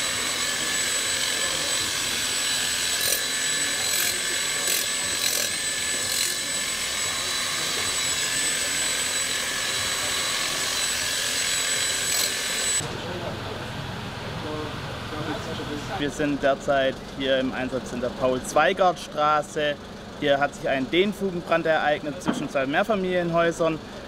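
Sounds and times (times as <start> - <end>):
power tool whining: 0.0 - 12.9.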